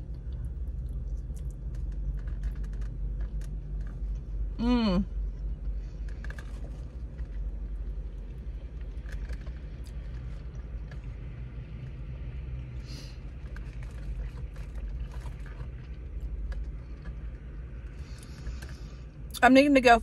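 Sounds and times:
person chewing: 0.0s - 4.3s, 5.2s - 11.2s, 13.2s - 18.8s.

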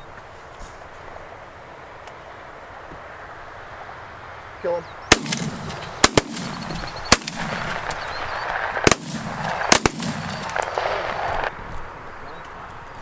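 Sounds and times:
shotgun blasts: 5.1s - 11.2s.

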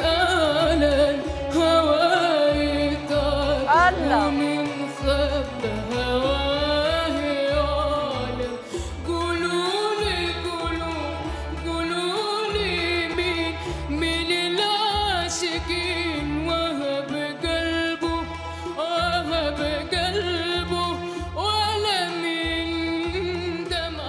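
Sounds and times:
girl singing: 0.0s - 5.0s
low rhythmic backing music: 0.0s - 24.0s.

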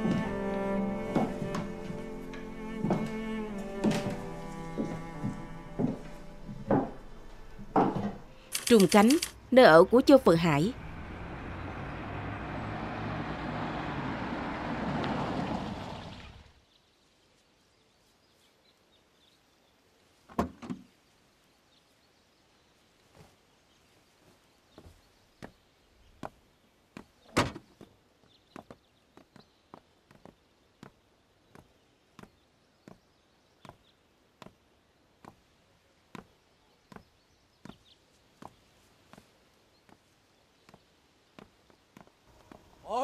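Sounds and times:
footsteps: 0.0s - 9.3s.

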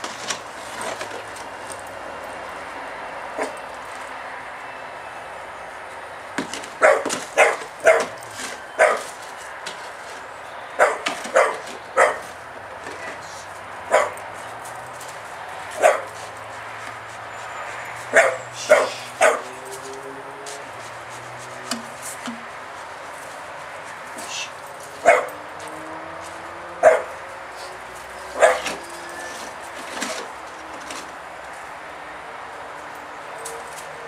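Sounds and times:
dog barking: 6.8s - 8.2s, 8.8s - 9.1s, 10.8s - 12.3s, 13.9s - 14.2s, 15.8s - 16.1s, 18.1s - 19.6s, 25.0s - 25.4s, 26.8s - 27.2s, 28.4s - 28.8s.

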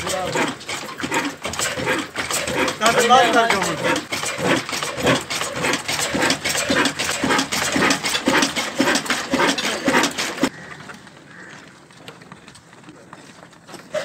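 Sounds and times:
diesel engine chugging: 0.0s - 10.7s.

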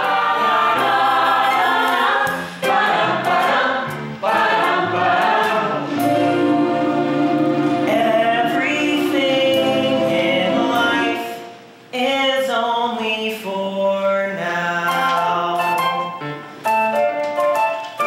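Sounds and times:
group singing in harmony: 0.0s - 11.9s.

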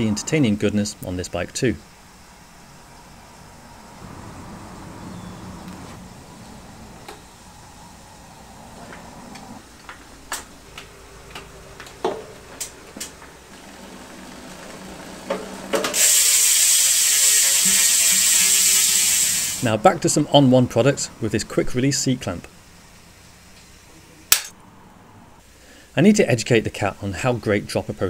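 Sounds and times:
bicycle freehub ratcheting buzz: 14.0s - 19.7s.

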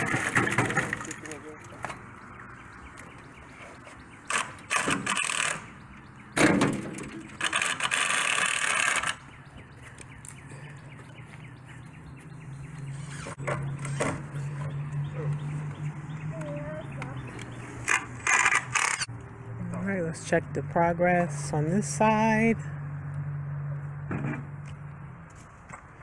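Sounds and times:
wheelbarrow knocks and rattles: 0.0s - 1.4s, 6.4s - 7.3s.

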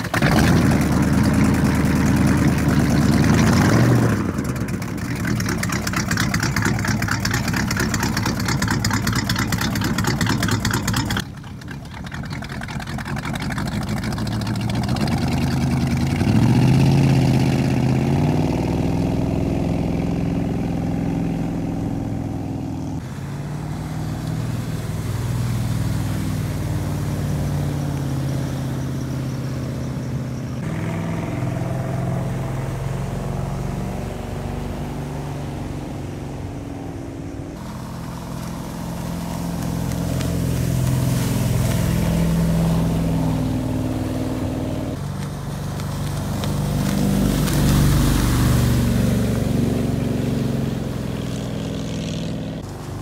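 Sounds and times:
boat engine running: 0.0s - 53.0s.

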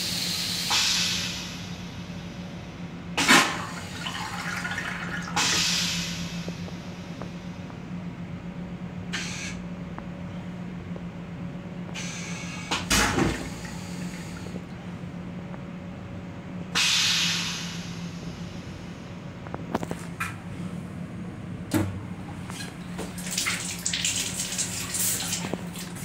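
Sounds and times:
steady low hum: 0.0s - 26.0s
toilet flush hissing: 3.2s - 6.6s, 12.0s - 14.6s, 23.0s - 26.0s.

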